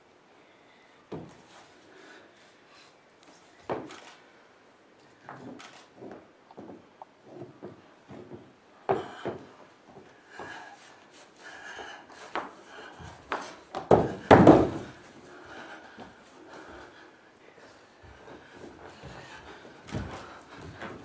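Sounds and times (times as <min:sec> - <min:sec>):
heavy thump: 0:13.9 - 0:15.0.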